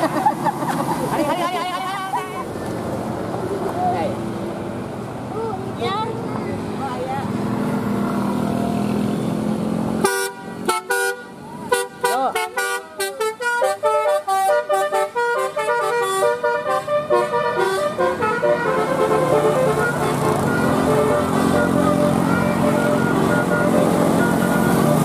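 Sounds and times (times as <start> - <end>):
traffic noise: 0.0 - 25.0
van engine: 0.0 - 25.0
melody horn playing a tune: 10.0 - 25.0.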